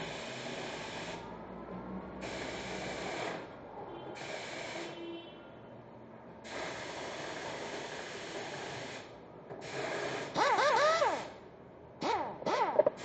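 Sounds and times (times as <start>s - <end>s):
compressed air hissing bursts: 4.2s - 5.0s, 6.4s - 10.4s.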